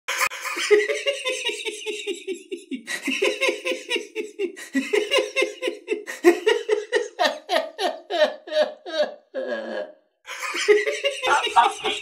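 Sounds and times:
person laughing hard: 0:00.1 - 0:12.0.

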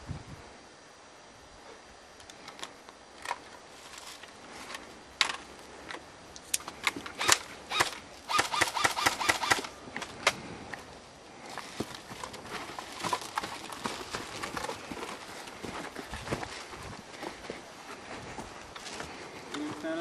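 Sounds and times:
airsoft guns firing: 0:07.2 - 0:09.7.

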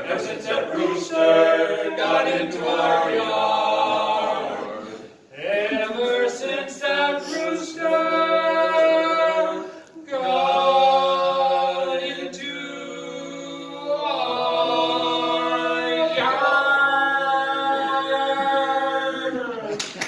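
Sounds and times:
male vocal quartet singing: 0:00.0 - 0:19.7.

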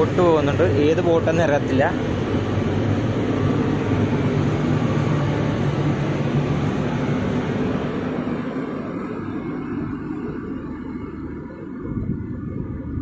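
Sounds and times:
low hum: 0:00.0 - 0:13.0
ship low rumble: 0:00.0 - 0:13.0.

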